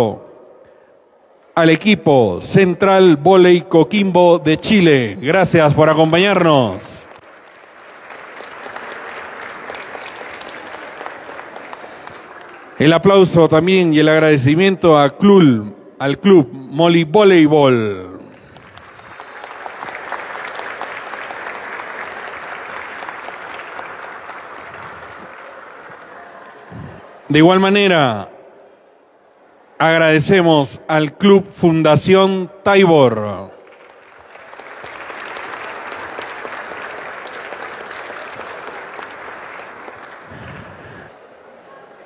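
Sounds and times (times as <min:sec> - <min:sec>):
crowd applauding: 0:05.3 - 0:12.9, 0:18.1 - 0:27.3, 0:33.6 - 0:42.0
small group clapping: 0:05.8 - 0:12.8, 0:18.2 - 0:27.2, 0:33.6 - 0:41.2.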